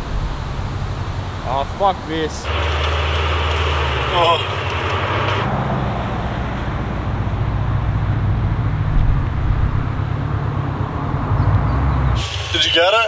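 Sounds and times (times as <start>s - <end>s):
tyre noise on wet road: 0.0s - 7.7s
car engine rumble: 0.0s - 13.0s.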